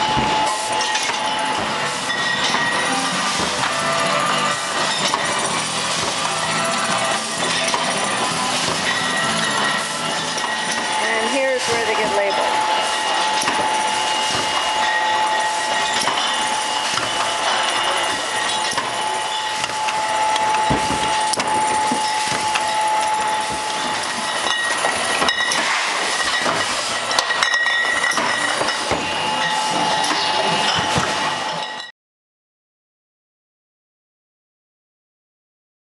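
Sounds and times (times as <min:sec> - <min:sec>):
bottling machine whirring and rattling: 0:00.0 - 0:31.9
machine whine: 0:00.0 - 0:31.9
glass bottles clinking: 0:00.1 - 0:31.9.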